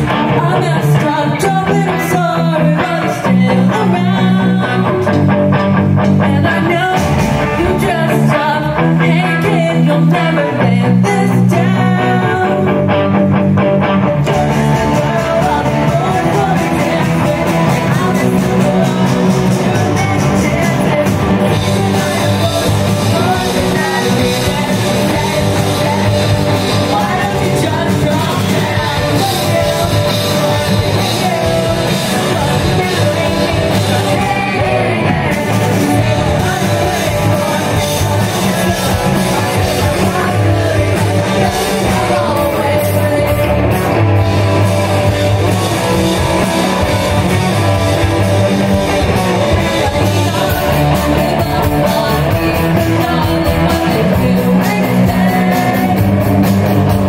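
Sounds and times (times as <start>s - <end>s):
lead singer singing: 0.0s - 13.2s, 14.1s - 57.0s
drums: 0.0s - 57.0s
electric guitars: 0.0s - 57.0s.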